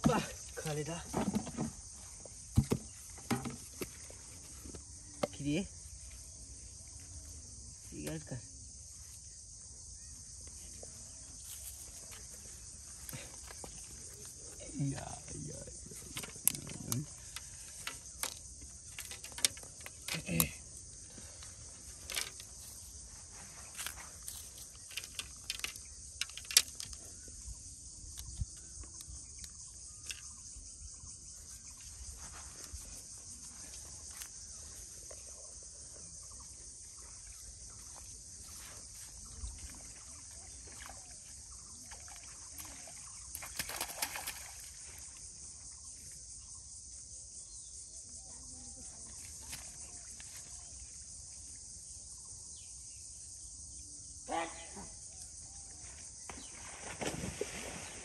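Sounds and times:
bamboo rods knocking: 2.5 - 4.0, 16.1 - 20.6, 22.0 - 22.5, 24.9 - 27.0
water splash: 40.6 - 44.9, 56.5 - 58.0.

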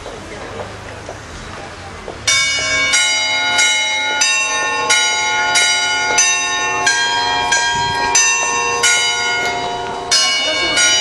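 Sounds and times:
church bells ringing: 2.2 - 11.0.

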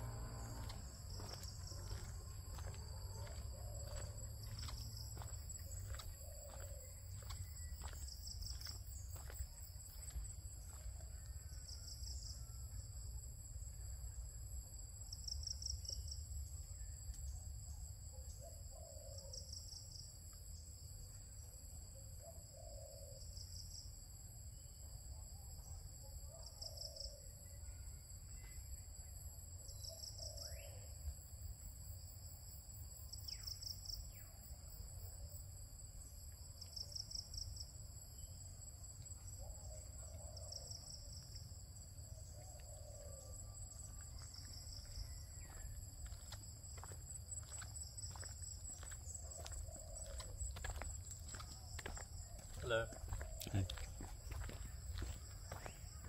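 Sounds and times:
faint low calls: 0.0 - 5.2
insects droning: 0.0 - 56.0.

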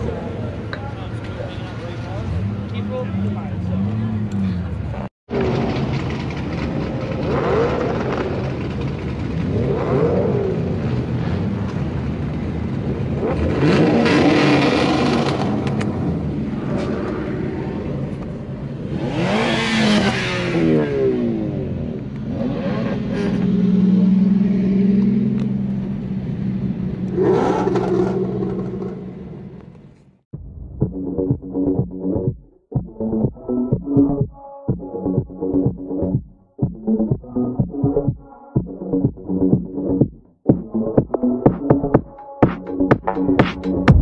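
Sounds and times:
car engines accelerating: 0.0 - 29.8.

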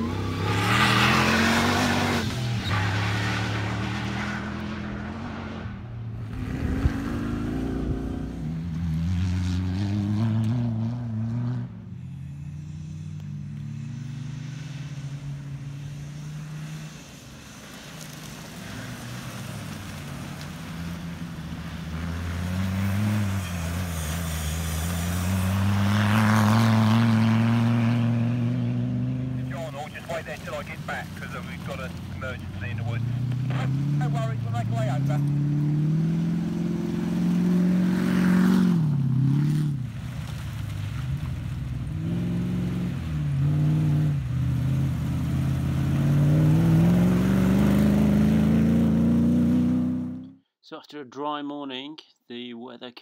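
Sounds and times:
race car engines revving hard: 0.0 - 11.8, 19.7 - 39.9, 41.2 - 50.3.

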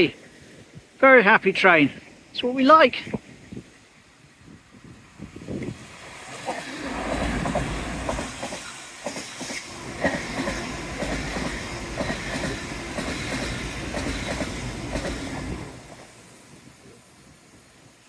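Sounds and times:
train rumbling past: 3.6 - 17.9.

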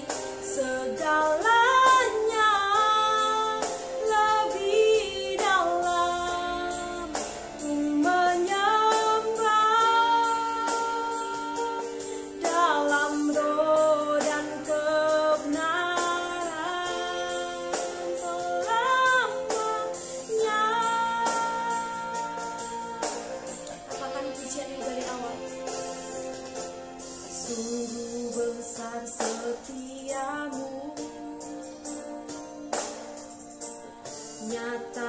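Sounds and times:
woman singing slow worship song: 0.0 - 33.0, 34.1 - 35.0
singer breathing: 11.9 - 12.4.

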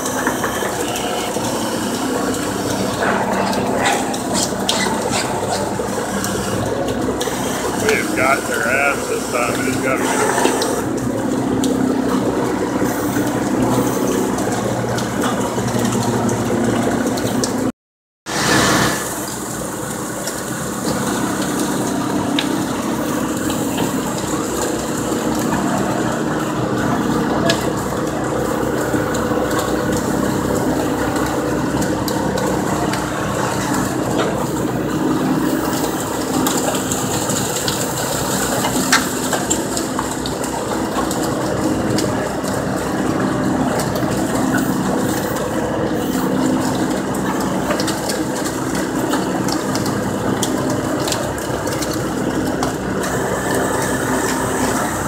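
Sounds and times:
engine and hydraulic machinery humming: 0.0 - 17.7, 18.3 - 55.0.

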